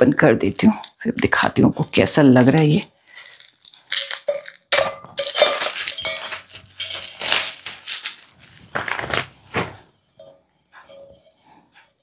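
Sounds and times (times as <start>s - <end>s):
packaging rustling: 2.4s - 9.9s.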